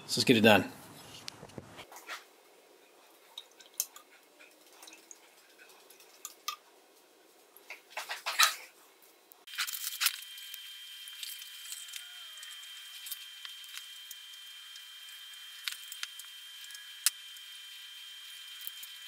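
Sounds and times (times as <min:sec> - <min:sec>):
liquid dripping: 0:03.2 - 0:06.6.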